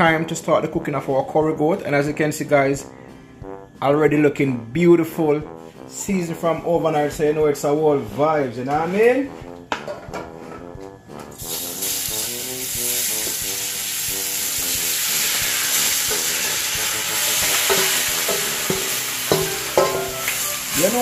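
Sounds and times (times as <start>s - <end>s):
meat sizzling in hot oil: 11.3s - 21.0s.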